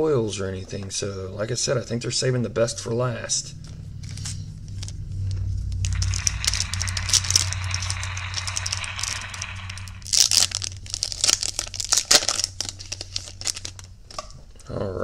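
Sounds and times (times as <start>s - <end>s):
foil wrapper crinkling and tearing: 5.8s - 14.3s.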